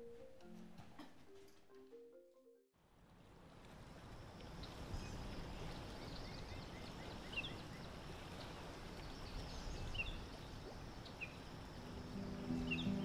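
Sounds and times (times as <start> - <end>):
low background hiss: 2.8 - 13.0
high bird chirps: 12.1 - 13.0.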